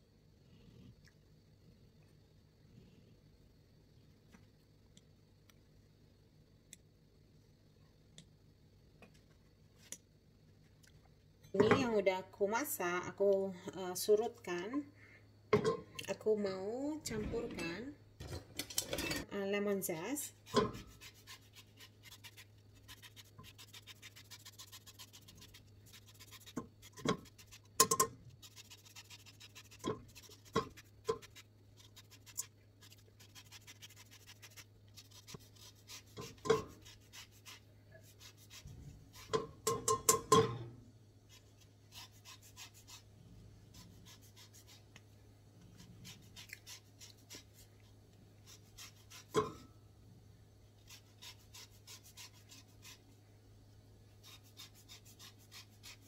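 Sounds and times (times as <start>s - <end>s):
lemon scraping on grater: 20.4s - 27.8s, 28.4s - 39.4s, 41.3s - 43.1s, 43.7s - 44.9s, 45.8s - 47.6s, 48.4s - 49.5s, 50.8s - 53.0s, 54.2s - 56.0s.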